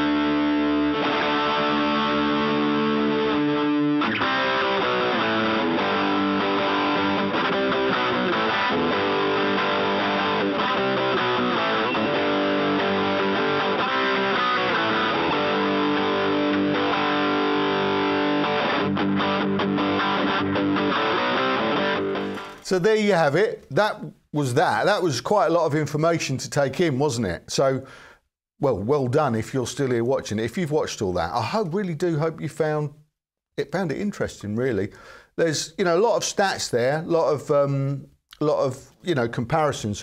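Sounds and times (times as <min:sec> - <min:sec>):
overdriven electric guitar: 0:00.0 - 0:22.7.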